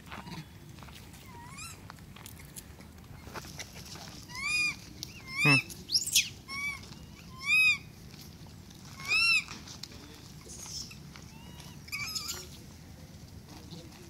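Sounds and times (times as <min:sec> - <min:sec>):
high-pitched animal calls: 0:01.2 - 0:01.8, 0:04.2 - 0:07.9, 0:08.8 - 0:09.6, 0:10.4 - 0:12.6.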